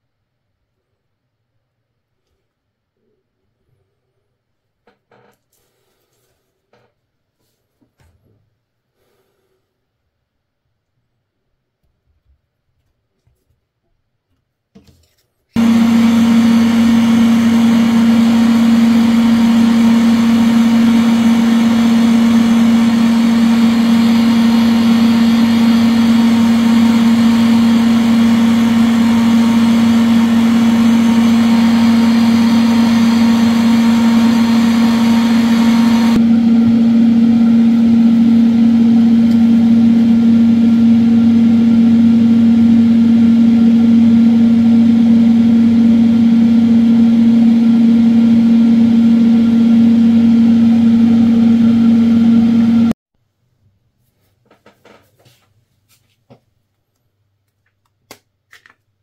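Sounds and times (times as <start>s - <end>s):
motor humming: 15.6s - 52.9s.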